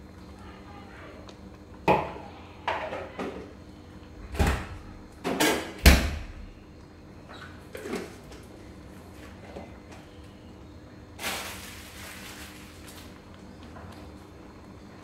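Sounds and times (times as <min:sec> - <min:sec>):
kitchen knocks and clunks: 0:01.8 - 0:03.5, 0:04.2 - 0:06.5.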